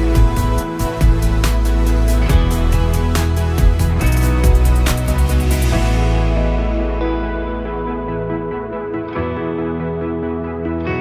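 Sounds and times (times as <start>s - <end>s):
instrumental music with heavy bass: 0.0s - 11.0s.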